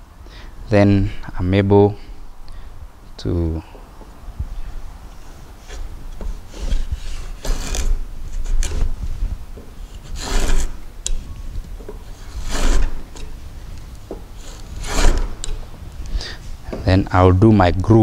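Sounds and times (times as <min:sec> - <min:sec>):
plane blade shaving wood: 0:05.6 - 0:08.9, 0:09.9 - 0:10.8, 0:12.2 - 0:13.3, 0:14.3 - 0:15.6.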